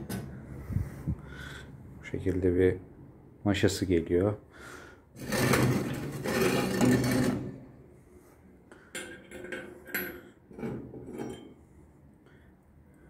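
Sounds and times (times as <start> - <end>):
metal lid scraping on stove: 5.2 - 7.7
metal clinks and knocks: 9.0 - 11.6.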